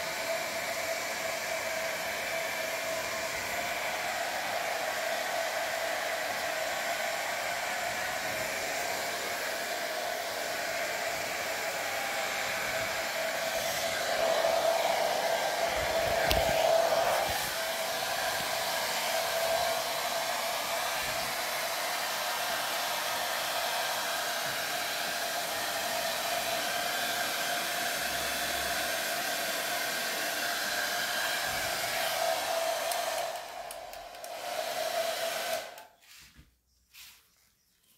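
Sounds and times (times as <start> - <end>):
hair dryer blowing with a whine: 0.0 - 36.2.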